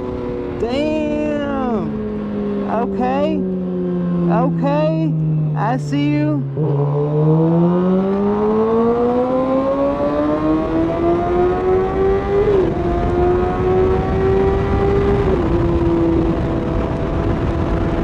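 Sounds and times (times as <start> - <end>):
motorcycle engine revving: 0.0 - 5.6, 6.4 - 18.0
wind on microphone: 12.4 - 18.0.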